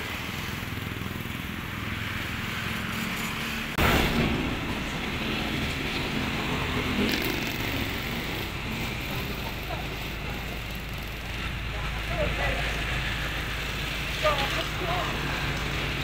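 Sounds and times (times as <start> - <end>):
street noise: 0.0 - 16.0
garbage truck engine idling: 3.8 - 16.0.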